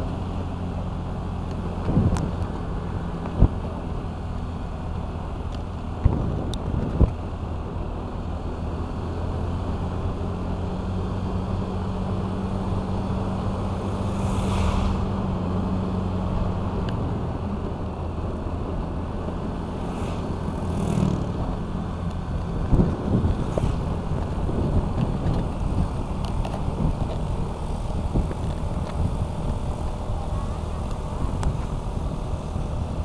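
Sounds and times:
wind rushing over microphone: 0:01.6 - 0:04.1, 0:05.0 - 0:07.6, 0:11.9 - 0:17.8, 0:19.4 - 0:33.0.

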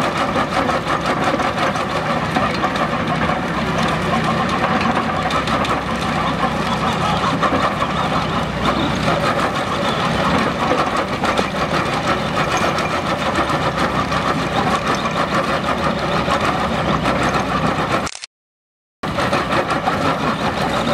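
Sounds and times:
drum cutter grinding wood: 0:00.0 - 0:18.1, 0:19.0 - 0:20.9
diesel engine running: 0:00.0 - 0:18.2, 0:19.0 - 0:20.9.

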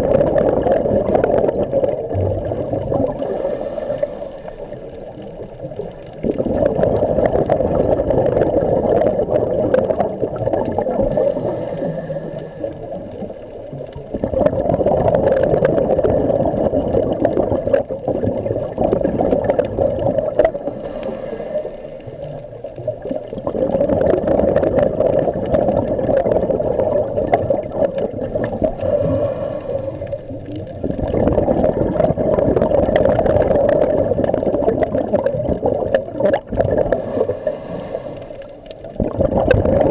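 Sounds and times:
exhaled bubbles underwater: 0:00.0 - 0:39.9
hissing regulator inhalations: 0:03.0 - 0:06.2, 0:10.9 - 0:14.1, 0:20.3 - 0:23.4, 0:28.4 - 0:31.0, 0:36.8 - 0:39.0.

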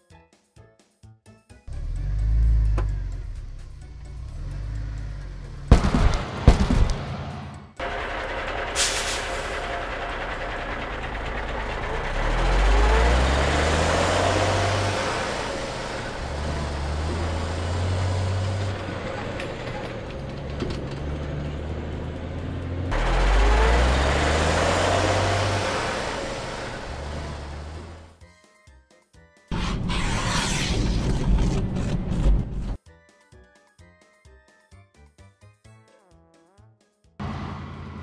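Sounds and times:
cartoon truck engine revving: 0:01.7 - 0:28.2, 0:37.2 - 0:38.0.

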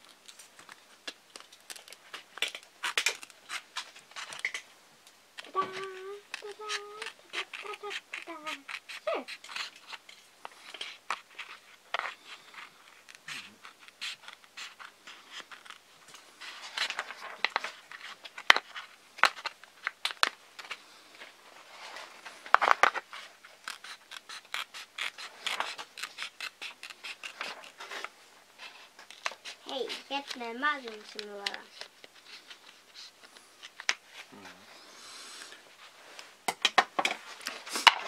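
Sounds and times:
scissors snipping plastic: 0:00.2 - 0:04.6, 0:05.4 - 0:15.8, 0:23.6 - 0:28.1, 0:29.0 - 0:32.1.

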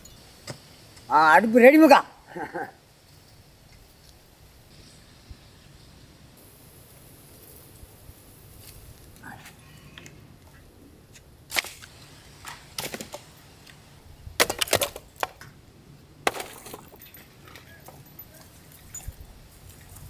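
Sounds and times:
firewood clattering onto ground: 0:11.5 - 0:13.4, 0:14.4 - 0:15.6, 0:16.2 - 0:19.0.

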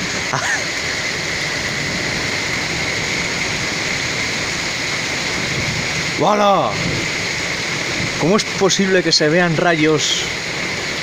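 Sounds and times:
torrential rain pouring: 0:00.0 - 0:11.0.

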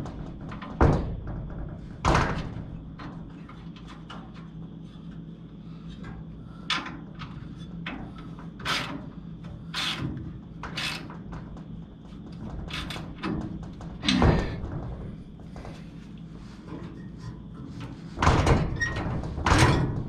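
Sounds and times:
bumper parts knocking into place: 0:00.0 - 0:03.0, 0:12.3 - 0:15.8
steady low hum: 0:00.0 - 0:20.0.

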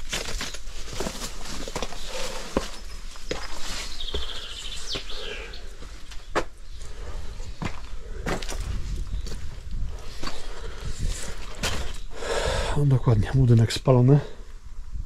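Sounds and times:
footsteps crunching over rubble: 0:00.0 - 0:12.2
songbird singing: 0:01.8 - 0:10.9.

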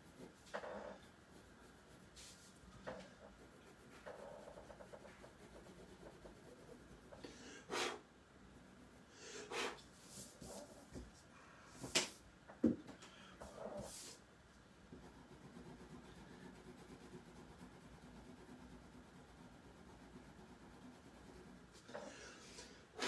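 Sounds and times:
pencil scratching on paper: 0:00.0 - 0:08.0, 0:14.9 - 0:21.7.

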